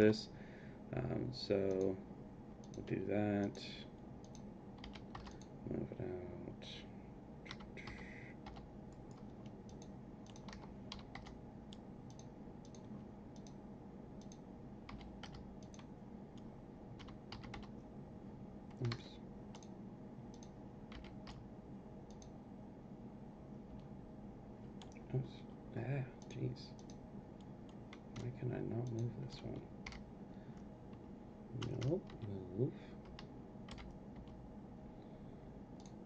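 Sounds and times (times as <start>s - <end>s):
low room hum: 0.0s - 36.0s
keyboard keystrokes: 4.2s - 5.5s, 7.5s - 11.4s, 17.0s - 17.7s
mouse clicks: 8.9s - 13.6s.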